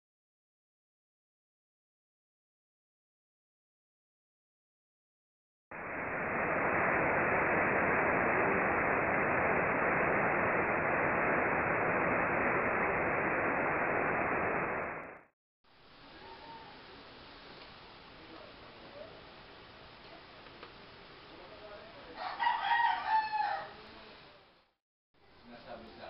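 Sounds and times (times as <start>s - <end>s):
steady hiss of noise: 5.8s - 26.0s.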